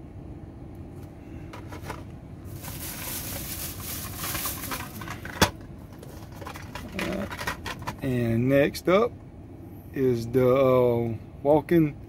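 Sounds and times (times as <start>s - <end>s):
plastic bag crinkling: 2.4s - 5.4s.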